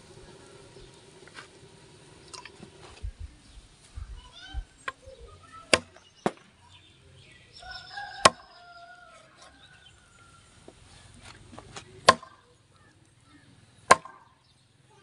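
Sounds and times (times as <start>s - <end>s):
knife chopping on wooden log: 5.7s - 6.4s, 11.7s - 12.4s, 13.9s - 14.3s
rooster crowing: 7.6s - 10.7s.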